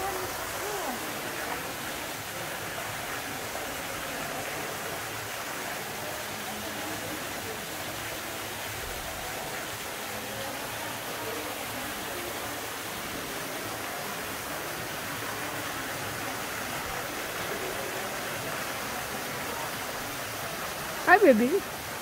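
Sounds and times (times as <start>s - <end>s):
water rushing down waterfall: 0.0s - 22.0s.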